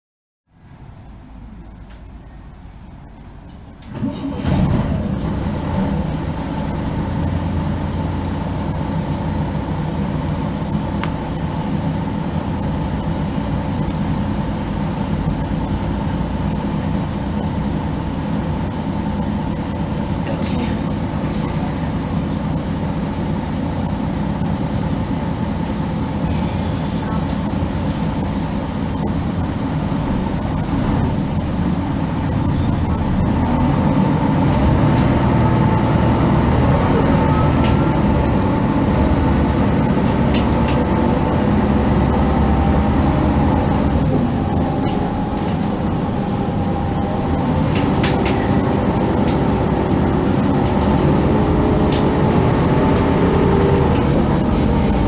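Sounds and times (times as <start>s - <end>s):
bus engine running: 0.5s - 55.0s
steady whine: 5.4s - 33.6s.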